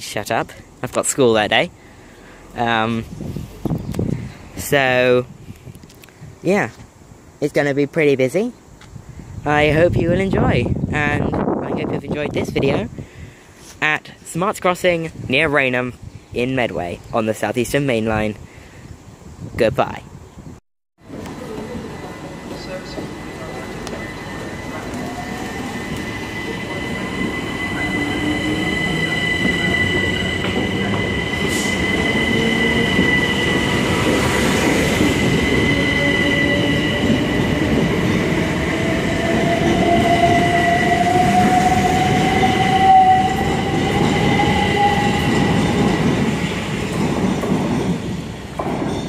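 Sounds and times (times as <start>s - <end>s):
train high whine: 21.0s - 49.0s
train wheels rumbling: 21.0s - 49.0s.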